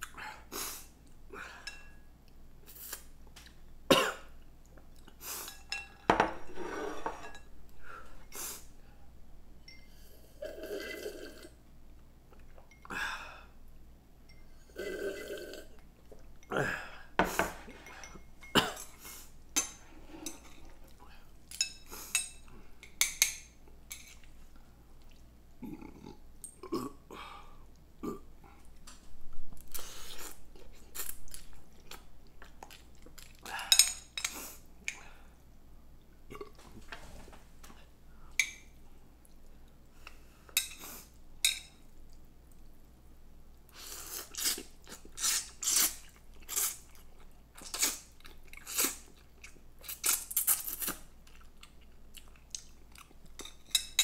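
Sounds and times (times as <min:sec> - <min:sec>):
chewing and mouth noises: 0:24.1 - 0:25.3, 0:29.6 - 0:33.5, 0:44.1 - 0:53.7.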